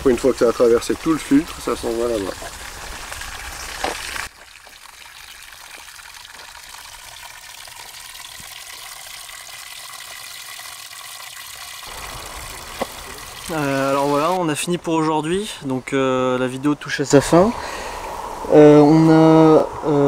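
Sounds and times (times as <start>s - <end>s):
water pouring into plastic tub: 0.0s - 14.4s.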